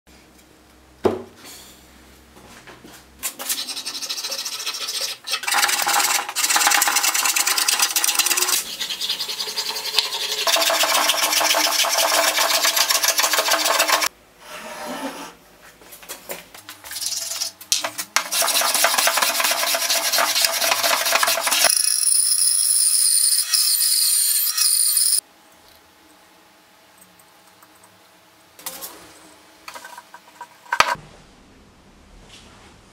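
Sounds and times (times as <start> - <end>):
hand plane shaving wood: 3.6 - 14.1, 18.2 - 21.7.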